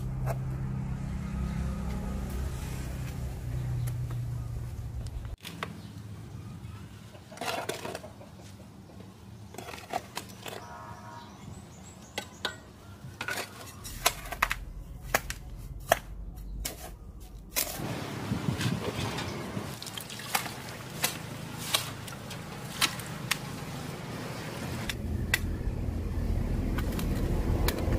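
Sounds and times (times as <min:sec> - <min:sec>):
trowel scraping metal basin: 0:13.2 - 0:17.8.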